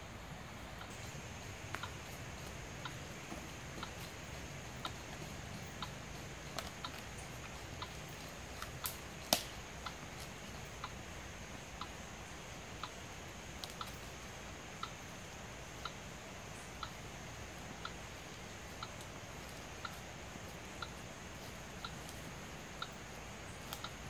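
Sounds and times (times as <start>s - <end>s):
steady high hiss: 0.0s - 24.0s
faint even ticking: 0.5s - 24.0s
sharp cracks: 8.6s - 9.6s.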